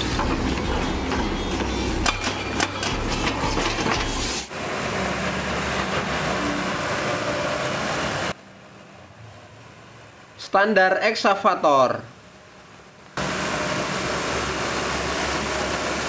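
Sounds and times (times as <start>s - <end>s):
heavy machine engine: 0.0s - 9.4s, 13.2s - 16.0s.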